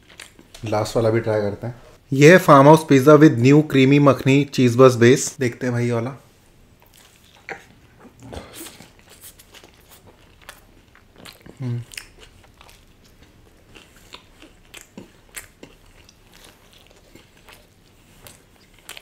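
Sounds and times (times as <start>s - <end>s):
person humming: 11.6s - 11.9s.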